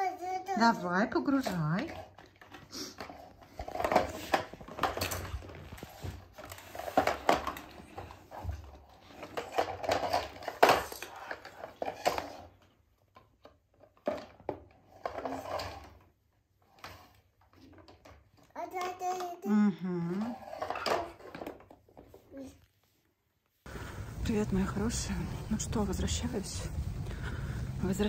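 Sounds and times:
plastic toys clattering: 1.2s - 19.4s, 20.1s - 22.5s.

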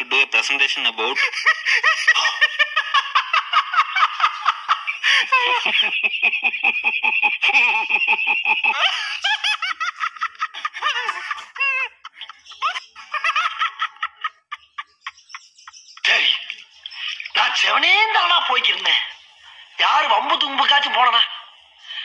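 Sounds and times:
men laughing hard: 1.0s - 16.3s.

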